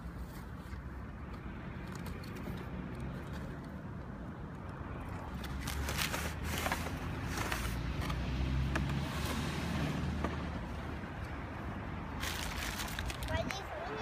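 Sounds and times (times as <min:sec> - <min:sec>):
cardboard and plastic rustling: 0:05.4 - 0:08.2, 0:12.2 - 0:13.6.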